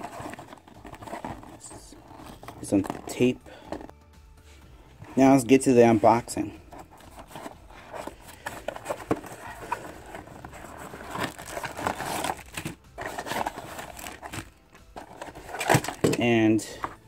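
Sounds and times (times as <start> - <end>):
packaging crinkling and rustling: 0.0 - 3.9, 6.7 - 16.2.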